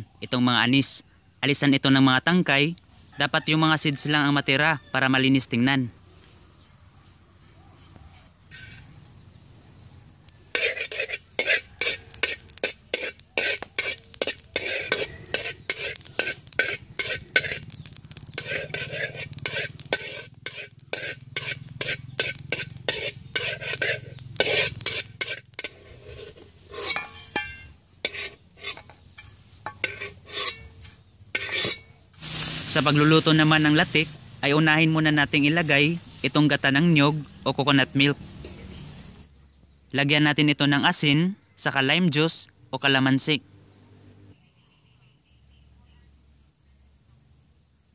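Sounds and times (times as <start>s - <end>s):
metal spoon stirring seeds in wok: 10.4s - 37.0s.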